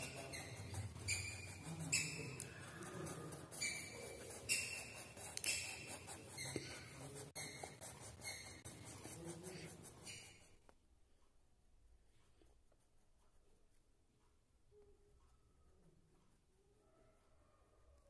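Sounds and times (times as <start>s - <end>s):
pencil scratching on paper: 0.0s - 10.7s.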